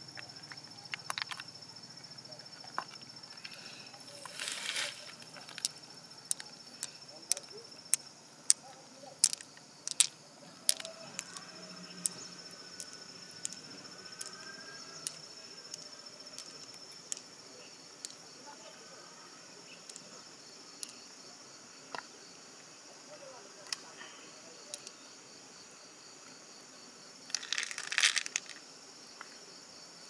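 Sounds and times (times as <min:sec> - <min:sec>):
high insect trill: 0:00.0 - 0:30.0
pearls clicking together: 0:00.2 - 0:01.5, 0:04.2 - 0:17.3, 0:18.0 - 0:18.2, 0:19.8 - 0:20.0, 0:24.7 - 0:25.0, 0:27.3 - 0:28.6.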